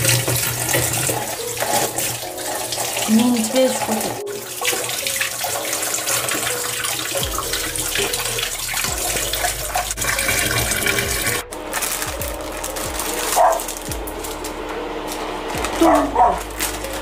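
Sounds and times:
tap water running into a sink: 0.0s - 11.9s
greens rinsed by hand: 0.0s - 17.0s.

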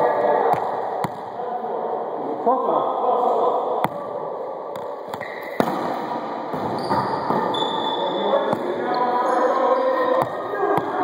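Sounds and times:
players' voices: 0.0s - 11.0s
ball slaps: 4.8s - 6.7s
sneakers squeaking on floor: 5.2s - 5.7s, 6.5s - 10.8s.

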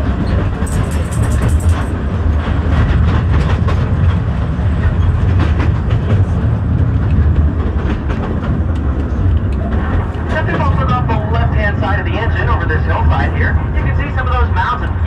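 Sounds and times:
train car rumbling on track: 0.0s - 15.0s
wheel clicks and clatter: 0.2s - 2.0s.

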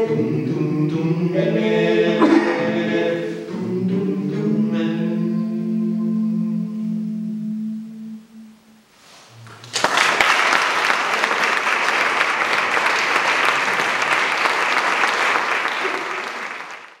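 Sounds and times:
audience applauding: 9.4s - 17.0s.

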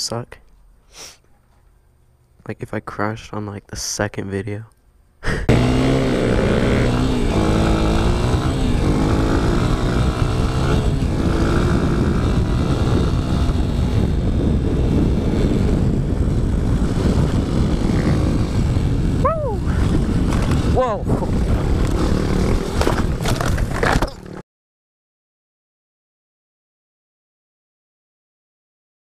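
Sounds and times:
dirt bike engine revving: 5.5s - 24.4s.

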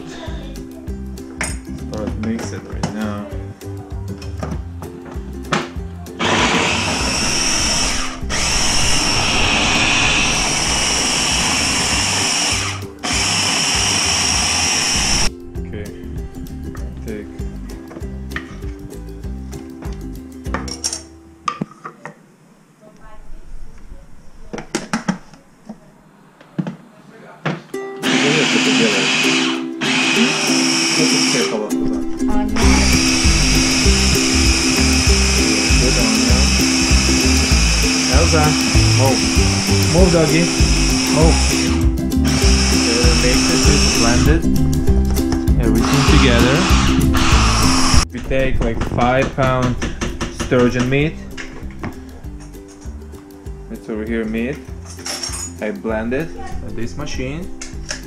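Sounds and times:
background music with bass line: 0.0s - 20.7s, 28.0s - 58.0s
food chopper whining: 6.2s - 15.3s, 28.0s - 31.7s, 32.6s - 44.3s, 45.7s - 48.1s.

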